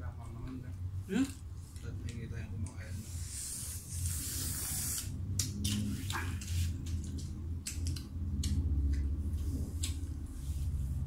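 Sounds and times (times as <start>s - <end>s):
steady low hum: 0.0s - 11.0s
crackly clicks and smacks: 0.2s - 2.8s, 4.9s - 10.3s.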